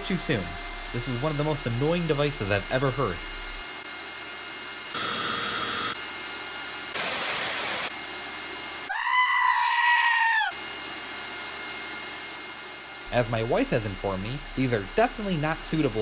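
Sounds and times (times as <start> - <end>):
vacuum cleaner running: 0.0 - 9.0, 10.5 - 16.0
cooling fans whirring: 0.0 - 16.0
loud hiss-like noise: 7.0 - 7.9, 13.0 - 16.0.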